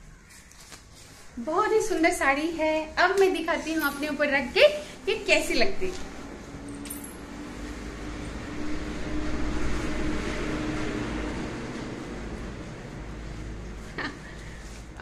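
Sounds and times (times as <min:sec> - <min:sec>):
silk fabric rustling: 0:12.5 - 0:15.0.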